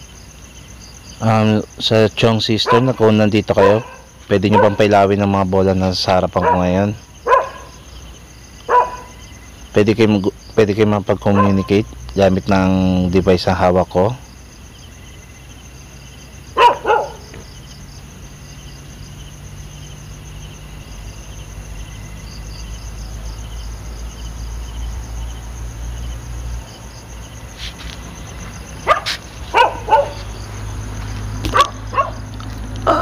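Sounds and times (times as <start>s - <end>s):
crickets chirping: 0.0s - 33.0s
dog barking: 2.6s - 4.9s, 6.3s - 7.8s, 8.7s - 9.2s, 11.2s - 11.8s, 16.6s - 17.4s, 28.8s - 30.4s, 31.4s - 32.3s
low vehicle rumble: 14.5s - 33.0s.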